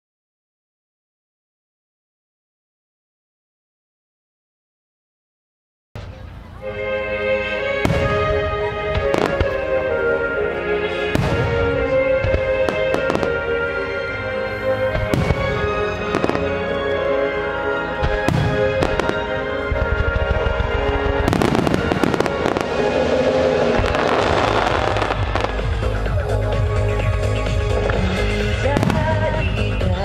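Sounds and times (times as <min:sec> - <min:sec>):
music playing: 0:06.0 - 0:30.0
fireworks bursting and crackling: 0:07.7 - 0:10.2, 0:10.9 - 0:17.1, 0:17.8 - 0:30.0.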